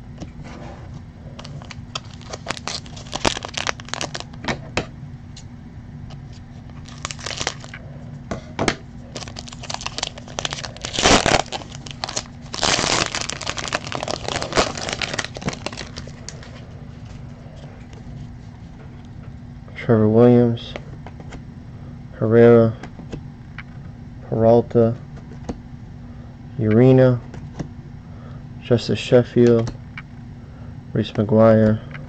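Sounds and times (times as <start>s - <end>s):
low steady hum: 0.0s - 32.0s
cards being handled: 1.4s - 4.4s, 6.2s - 7.8s
foil wrapper crinkling and tearing: 1.4s - 4.4s, 6.8s - 7.8s, 9.1s - 16.6s.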